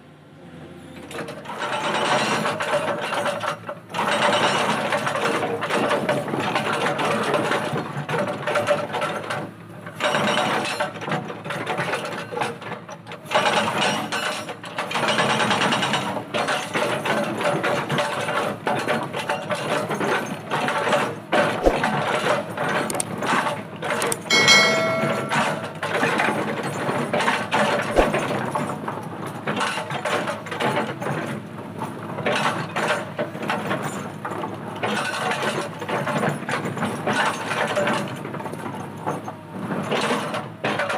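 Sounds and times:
short ringing tone: 24.3 - 26.2.

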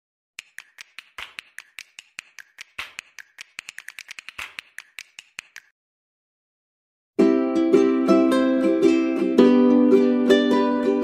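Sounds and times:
quick dry clicks: 0.4 - 5.7.

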